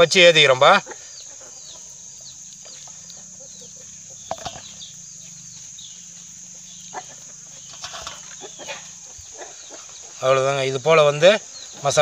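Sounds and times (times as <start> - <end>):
chickens: 0.0 - 12.0
insect drone: 0.0 - 12.0
small birds chirping: 0.0 - 12.0.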